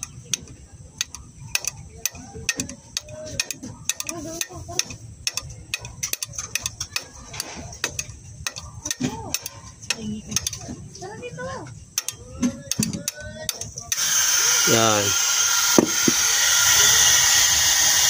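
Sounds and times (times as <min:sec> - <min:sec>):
metallic ticking and clicking: 0:00.0 - 0:10.7, 0:11.9 - 0:14.0
low mechanical hum: 0:00.0 - 0:18.0.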